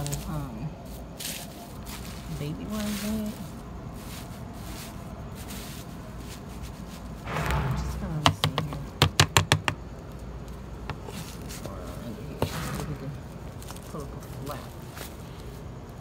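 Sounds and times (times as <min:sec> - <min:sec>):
rustling noise: 0:00.0 - 0:09.0.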